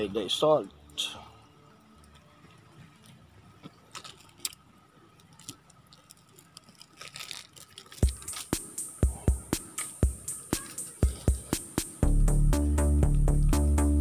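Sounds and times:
electronic music with steady beat: 0:08.0 - 0:14.0.

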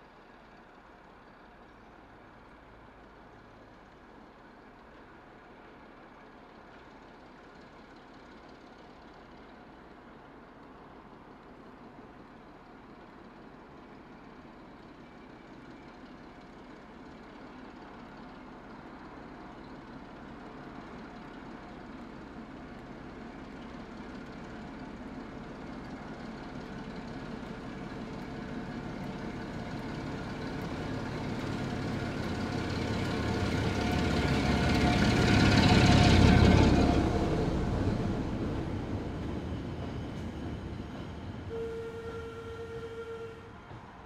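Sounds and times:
diesel locomotive engine: 0:00.0 - 0:44.0
short steady tone: 0:41.5 - 0:43.6.

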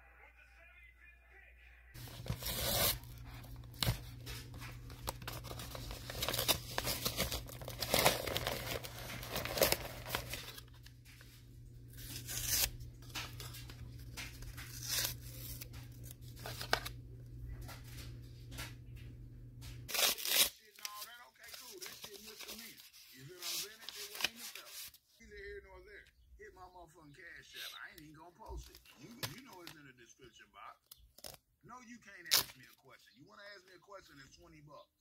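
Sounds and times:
paper envelope ripping: 0:02.0 - 0:11.0, 0:11.8 - 0:17.0, 0:19.9 - 0:25.0, 0:32.2 - 0:32.7.

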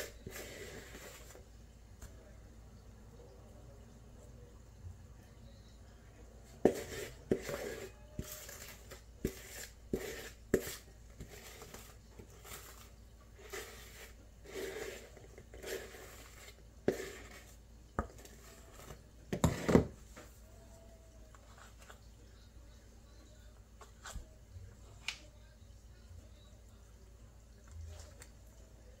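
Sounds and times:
spoon scraping mixing bowl: 0:00.0 - 0:01.4, 0:06.6 - 0:20.0.

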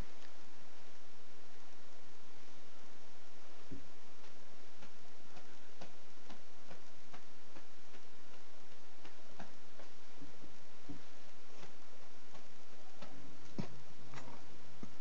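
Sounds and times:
steady hiss: 0:00.0 - 0:15.0
light irregular clicks: 0:03.8 - 0:10.2.

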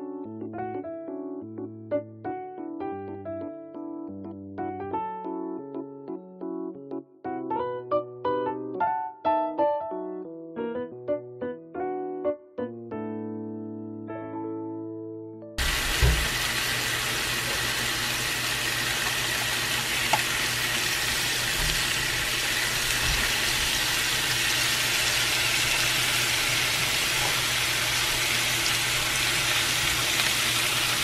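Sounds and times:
food sizzling in a frying pan: 0:15.6 - 0:31.0.

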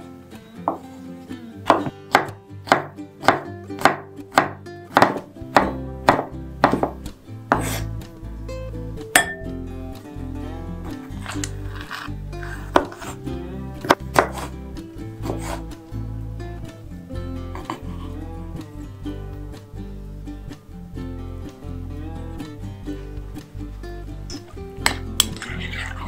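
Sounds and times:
acoustic guitar music: 0:00.0 - 0:26.0
knife chopping on wooden board: 0:01.7 - 0:07.9, 0:12.7 - 0:13.2, 0:13.8 - 0:14.5.

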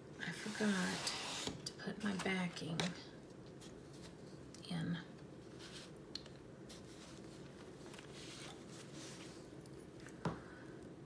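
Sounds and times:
paper rustling and sliding: 0:00.4 - 0:02.4, 0:06.7 - 0:09.5.

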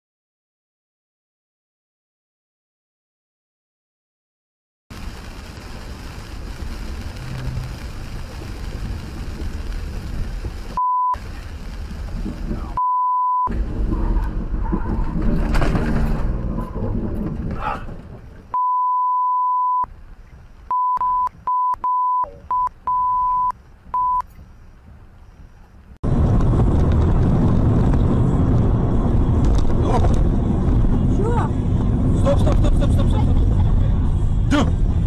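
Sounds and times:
in-car road and rain noise: 0:04.9 - 0:12.8, 0:13.5 - 0:18.6, 0:19.6 - 0:35.0
car engine and road noise: 0:04.9 - 0:35.0
censor bleeps: 0:10.8 - 0:11.2, 0:12.8 - 0:13.5, 0:18.5 - 0:19.9, 0:20.7 - 0:24.3.

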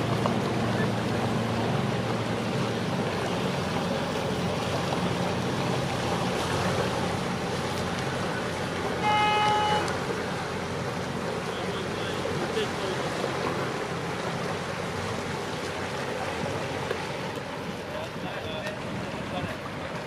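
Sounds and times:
boat engine running: 0:00.0 - 0:20.0
water noise: 0:00.0 - 0:20.0
short horn toot: 0:09.0 - 0:09.9.

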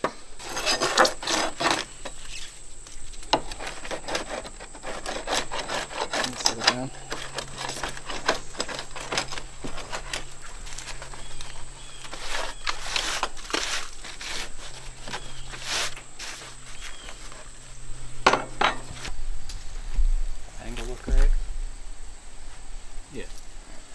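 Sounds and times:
handsaw scraping: 0:00.4 - 0:02.6, 0:03.2 - 0:17.7.

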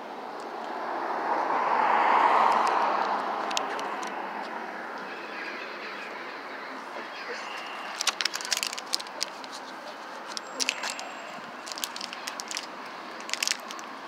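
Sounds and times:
steady traffic hum: 0:00.0 - 0:14.0
vehicle driving past: 0:00.6 - 0:07.9.

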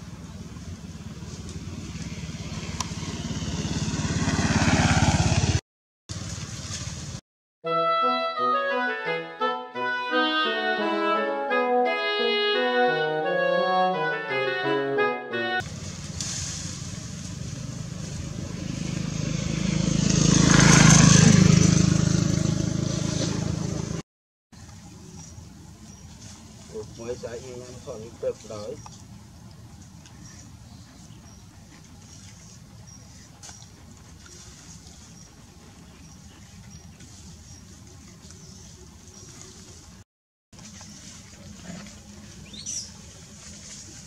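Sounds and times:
engine running: 0:00.0 - 0:07.2, 0:15.6 - 0:24.0, 0:40.6 - 0:44.0.

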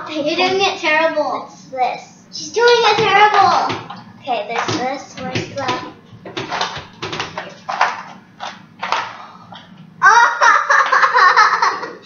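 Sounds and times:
girls laughing: 0:10.0 - 0:12.0.

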